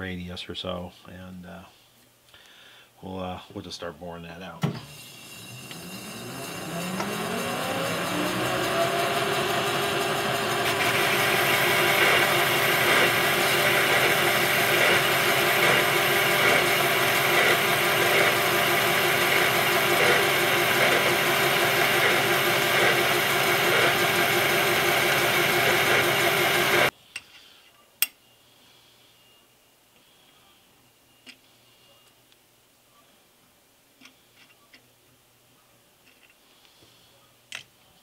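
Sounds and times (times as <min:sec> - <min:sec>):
metal lathe droning: 0:04.9 - 0:26.9.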